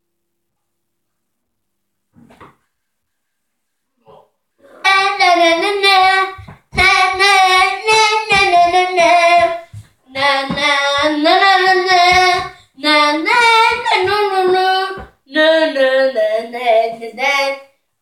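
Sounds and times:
child singing: 4.8 - 17.8.

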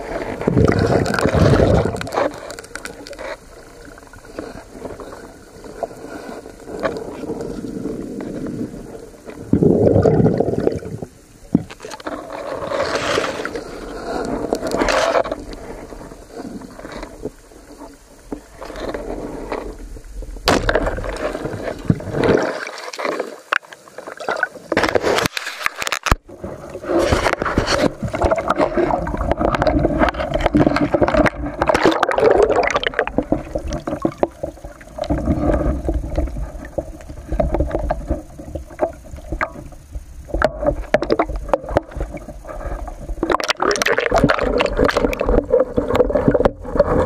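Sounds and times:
water sloshing and gurgling: 0.0 - 47.0
knocks and splashes: 20.4 - 23.6.

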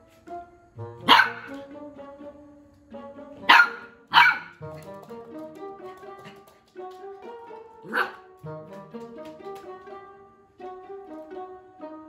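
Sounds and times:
light background music: 0.0 - 12.0
puppy barking: 1.0 - 1.6, 3.4 - 4.9, 7.8 - 8.3.

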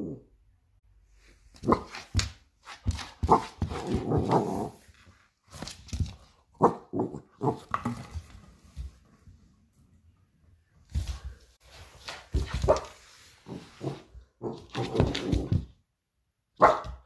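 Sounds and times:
dog barking and growling: 0.0 - 0.4, 1.6 - 2.2, 3.2 - 4.8, 6.5 - 8.1, 12.6 - 15.7, 16.6 - 17.0.

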